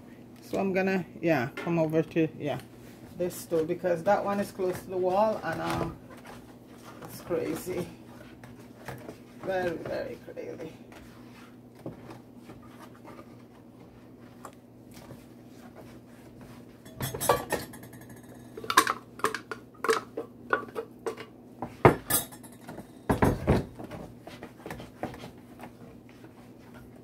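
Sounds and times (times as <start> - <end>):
metal pots and utensils clattering: 16.8 - 21.3, 21.9 - 23.6.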